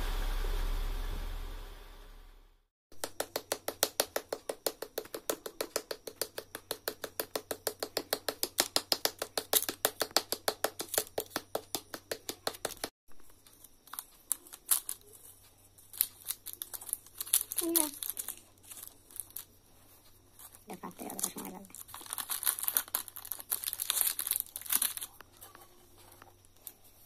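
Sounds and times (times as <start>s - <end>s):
paddle patting clay: 2.9s - 12.9s.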